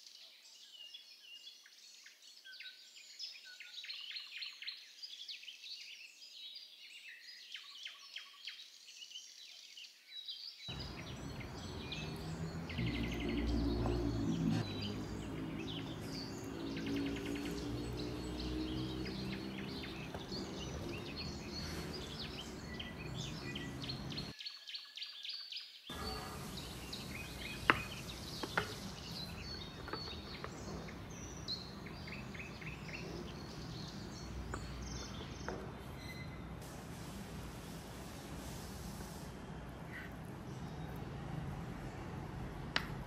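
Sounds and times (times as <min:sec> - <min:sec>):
small birds chirping: 0:00.0 - 0:43.0
steady background noise: 0:10.7 - 0:24.4.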